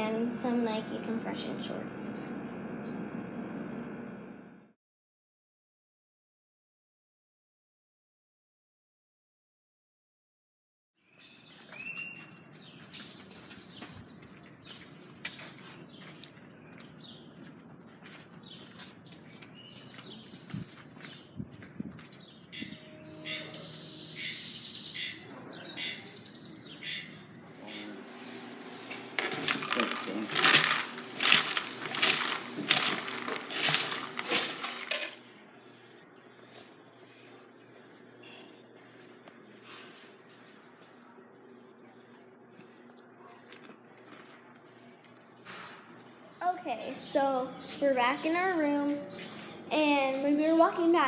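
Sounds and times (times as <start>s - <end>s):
birds chirping: 11.0s - 39.6s, 45.0s - 50.2s
steady background noise: 12.4s - 51.0s
cereal rattling into a paper bowl: 29.1s - 35.2s.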